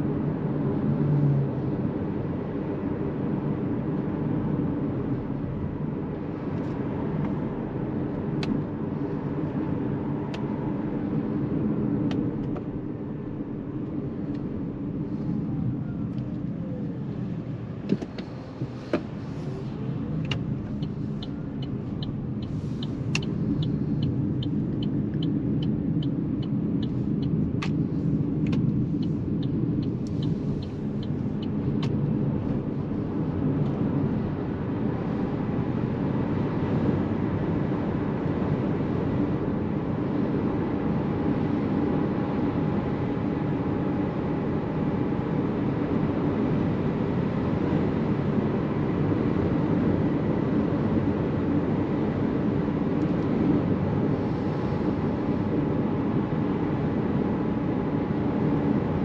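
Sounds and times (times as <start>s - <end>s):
tyre and road noise: 3.6s - 42.0s
turn indicator ticking: 20.1s - 32.7s.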